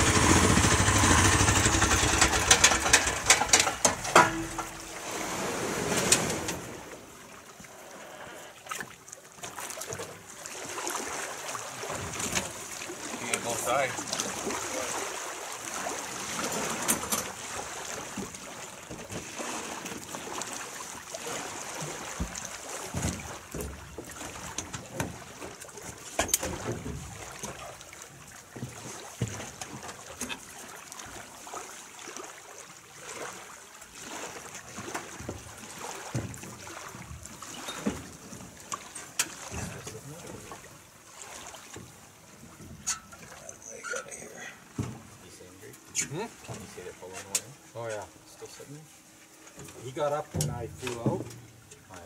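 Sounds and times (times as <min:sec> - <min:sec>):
light wind: 0:00.0 - 0:32.4
lake water lapping and splashing: 0:00.0 - 0:52.0.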